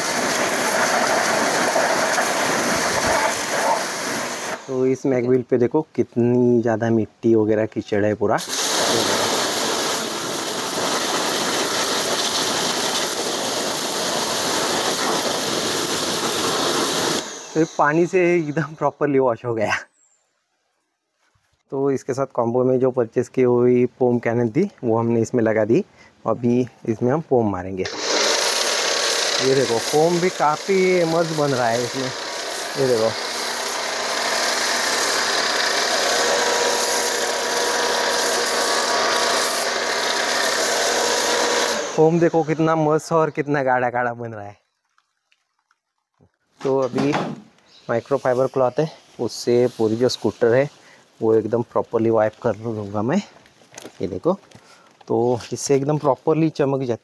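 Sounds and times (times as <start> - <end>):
pressure washer spraying water: 0.0 - 4.8, 8.4 - 18.8, 27.9 - 43.1
motor and pump humming: 8.6 - 18.6, 27.9 - 42.8.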